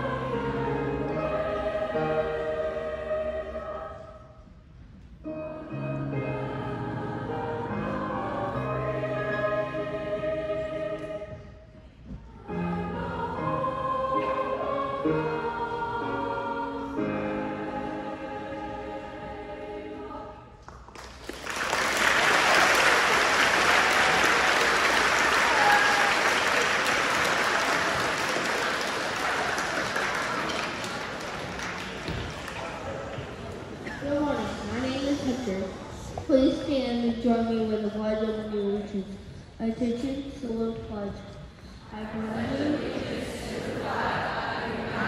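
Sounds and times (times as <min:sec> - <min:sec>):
choir singing long notes: 0:00.0 - 0:04.5, 0:05.3 - 0:11.7, 0:12.3 - 0:20.6, 0:41.9 - 0:45.0
choir holding a note: 0:12.4 - 0:20.5
crowd applauding: 0:20.8 - 0:33.8.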